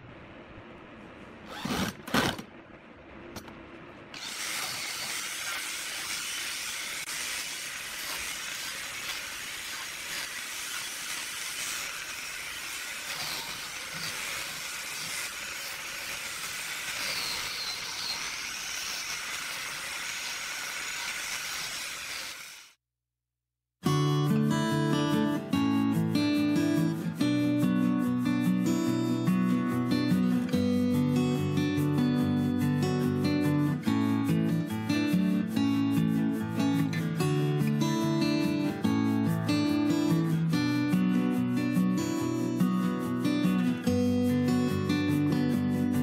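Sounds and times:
power sander on wood: 4.2 - 22.8.

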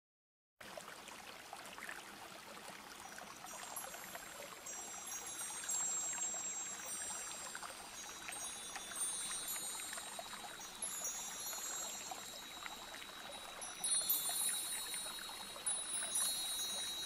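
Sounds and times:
flowing stream water: 0.6 - 17.0
high sustained chime tones: 3.5 - 17.0.

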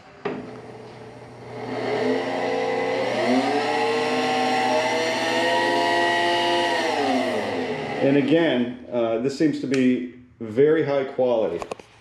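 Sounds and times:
conveyor motor whine: 0.0 - 8.8.

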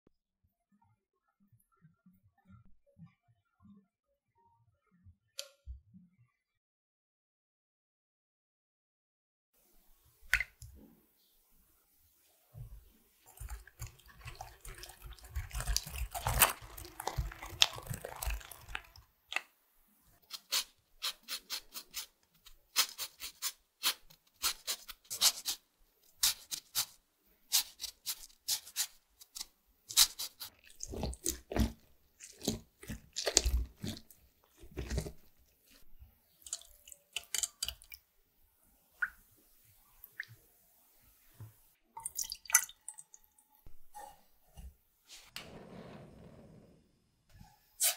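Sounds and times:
grater scraping lemon zest: 13.3 - 18.9, 20.2 - 25.6, 26.2 - 35.8.

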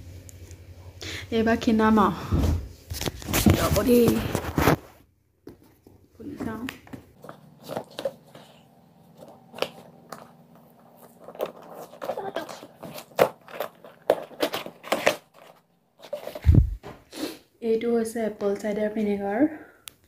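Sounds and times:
cardboard box being torn open: 10.9 - 16.4.

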